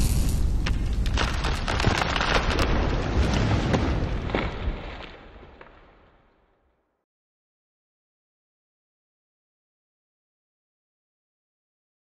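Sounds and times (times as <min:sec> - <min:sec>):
crackling: 0:00.0 - 0:06.2.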